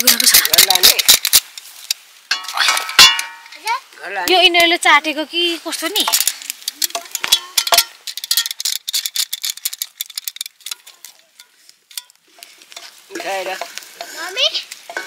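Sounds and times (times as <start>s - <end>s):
food sizzling in frying pan: 10.4s - 15.0s.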